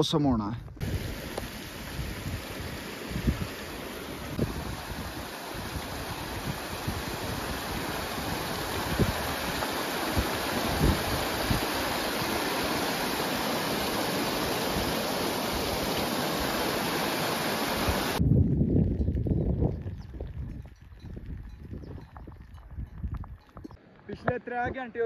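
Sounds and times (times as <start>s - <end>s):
stream rushing over stones: 0.8s - 18.2s.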